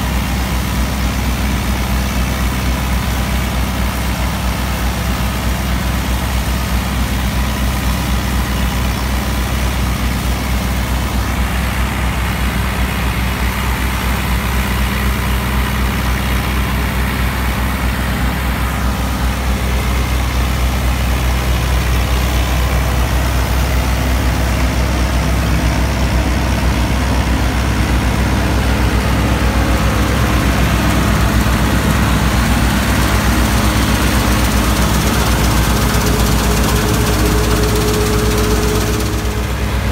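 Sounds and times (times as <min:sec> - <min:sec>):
tractor diesel engine running: 0:00.0 - 0:39.9
straw chopper rushing: 0:10.8 - 0:39.9.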